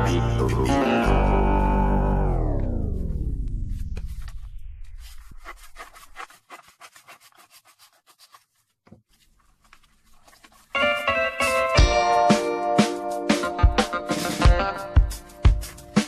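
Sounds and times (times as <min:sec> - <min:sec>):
music slowing down like tape: 0:00.0 - 0:05.1, 0:11.0 - 0:16.0
wrapping paper rustling: 0:03.7 - 0:11.8.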